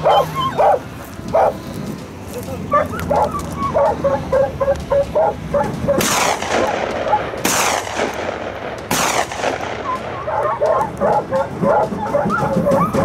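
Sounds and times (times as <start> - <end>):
hounds baying: 0.0 - 8.1, 9.0 - 13.0
gunshots with echo: 5.9 - 11.4.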